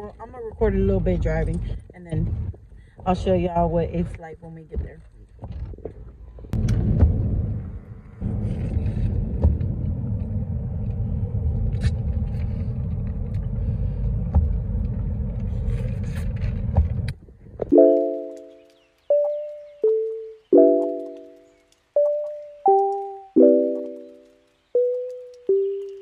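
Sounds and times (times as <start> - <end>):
car road and engine rumble: 0.0 - 17.7
music: 17.8 - 26.0.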